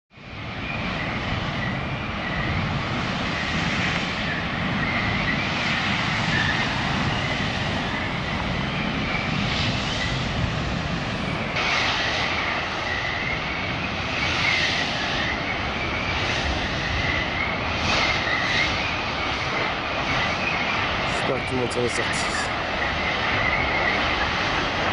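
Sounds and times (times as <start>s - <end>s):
roar of huge fire: 0.2s - 24.9s.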